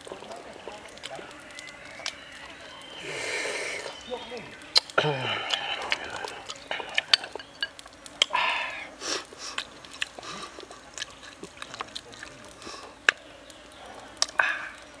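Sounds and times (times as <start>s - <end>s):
chewing and breathing: 0.8s - 15.0s
chopsticks clicking on wooden cup: 4.8s - 8.4s.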